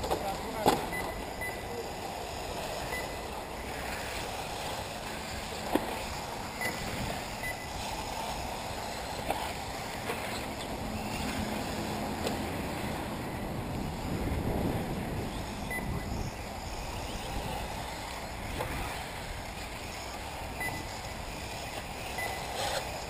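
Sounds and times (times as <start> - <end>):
electric rc cars racing: 0.0 - 23.0
wind on microphone: 12.6 - 19.5.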